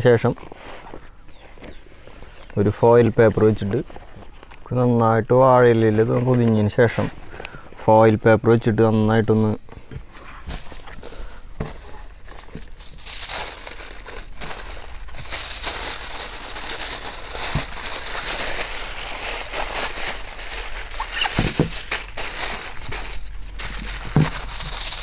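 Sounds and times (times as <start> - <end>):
aluminium foil crinkling: 10.5 - 25.0.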